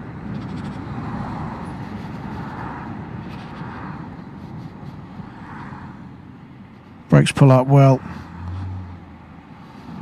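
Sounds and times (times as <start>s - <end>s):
wind rumble: 0.0s - 7.1s
oncoming traffic passing: 0.0s - 10.0s
tyre and road noise: 0.0s - 10.0s.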